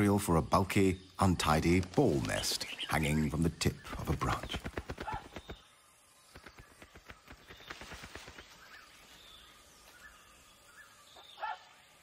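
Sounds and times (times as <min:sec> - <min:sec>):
faint bird chirps: 0:00.0 - 0:12.0
twigs crackling and rustling: 0:01.6 - 0:03.3.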